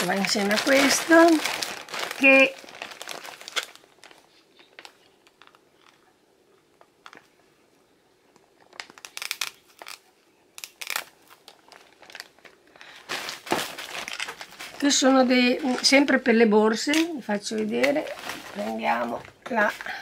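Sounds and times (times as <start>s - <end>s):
plastic packaging crinkling: 0.0s - 7.4s, 8.3s - 16.3s, 16.9s - 20.0s.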